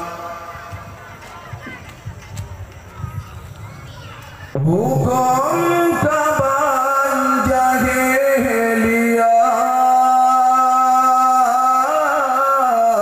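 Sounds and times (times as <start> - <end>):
man singing into microphone: 0.0 - 0.9, 4.6 - 13.0.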